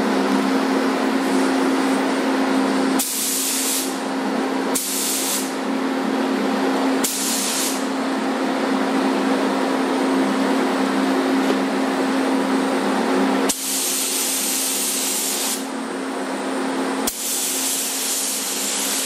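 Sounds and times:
fans humming: 0.0s - 3.1s, 3.8s - 19.0s
spray gun hissing: 3.0s - 4.0s, 4.8s - 5.5s, 7.0s - 7.8s, 13.5s - 15.7s, 17.1s - 19.0s.

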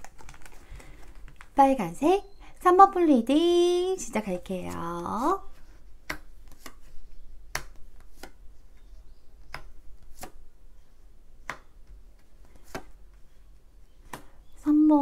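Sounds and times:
cards clicking on a table: 6.0s - 6.9s, 7.5s - 8.8s, 9.4s - 10.4s, 11.4s - 13.0s, 14.1s - 14.3s.

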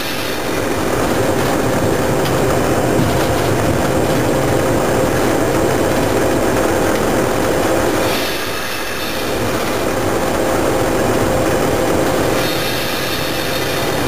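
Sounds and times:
hiss: 0.0s - 1.7s, 8.0s - 10.0s, 12.2s - 14.0s
train rumbling on rails: 0.0s - 14.0s.

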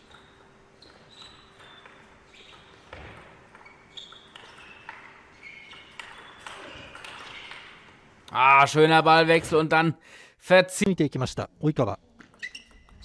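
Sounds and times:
shoes squeaking on floor: 0.0s - 8.0s, 12.1s - 13.0s.

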